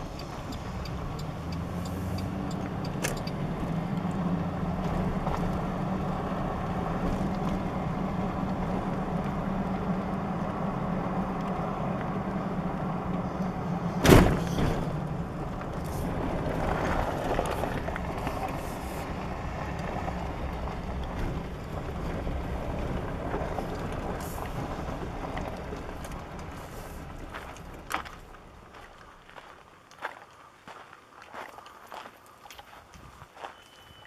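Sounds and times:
truck engine hum and road noise: 0:00.0 - 0:34.0
sharp thump: 0:14.0 - 0:15.0.

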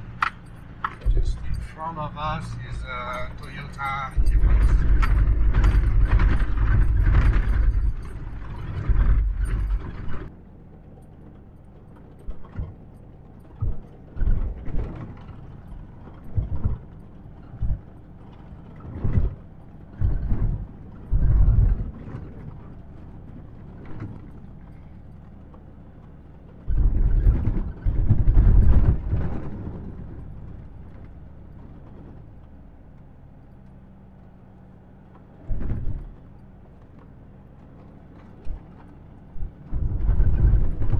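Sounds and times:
truck body thumping and rattling: 0:00.0 - 0:10.4, 0:11.3 - 0:40.9
truck rumbling: 0:00.0 - 0:40.9.

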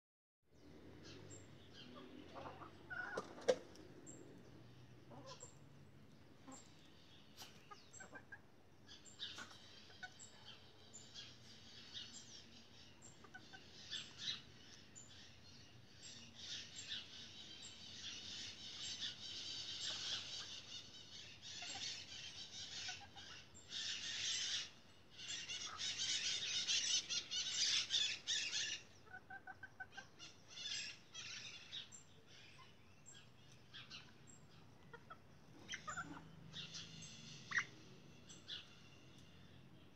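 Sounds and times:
chickens clucking: 0:01.9 - 0:04.1, 0:05.0 - 0:08.6, 0:09.2 - 0:10.6, 0:13.0 - 0:14.3, 0:18.6 - 0:31.4, 0:33.5 - 0:36.8, 0:37.5 - 0:37.7.

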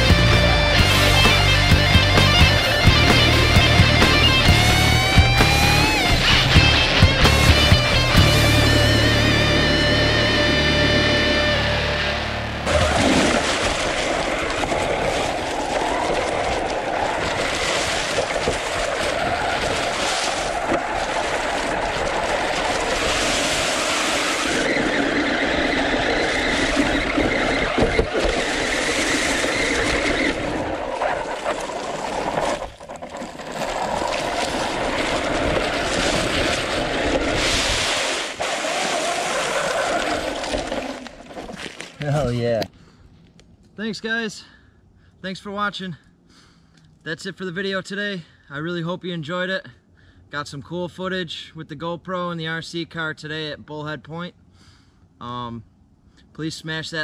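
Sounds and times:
steady whine: 0:00.0 - 0:17.6
rc truck motor and drivetrain: 0:24.1 - 0:33.1
wind on microphone: 0:33.8 - 0:38.2.

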